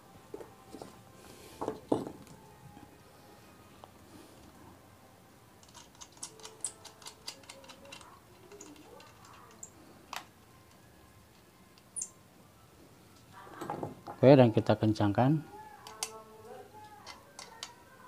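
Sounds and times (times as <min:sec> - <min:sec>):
small metal clicks and ticks: 0:05.6 - 0:11.9.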